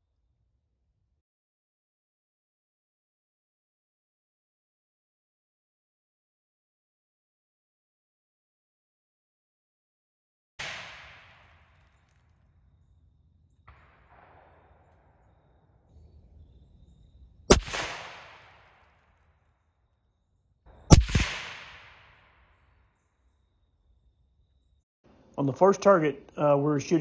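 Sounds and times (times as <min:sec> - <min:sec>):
suppressed rifle shots: 0:10.6 - 0:12.1, 0:17.5 - 0:19.0, 0:20.9 - 0:22.6.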